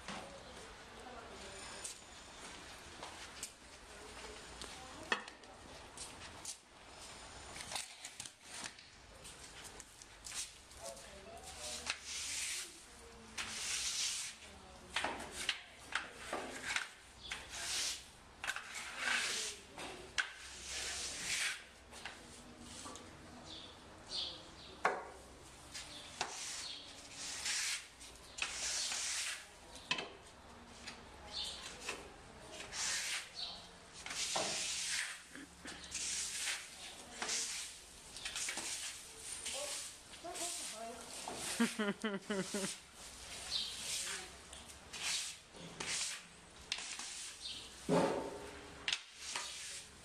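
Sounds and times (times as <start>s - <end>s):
rustling and scraping: 25.6s - 50.0s.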